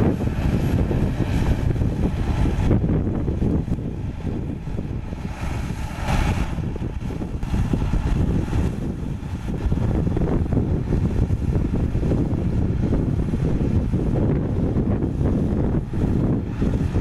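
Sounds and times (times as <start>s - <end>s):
dozer diesel engine rumbling: 0.0s - 17.0s.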